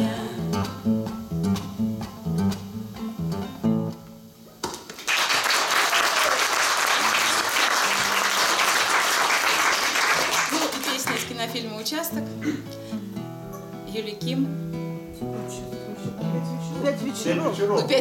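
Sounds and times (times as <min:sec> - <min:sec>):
acoustic guitar strumming: 0:00.0 - 0:04.8, 0:10.2 - 0:18.0
audience applause: 0:04.9 - 0:11.3.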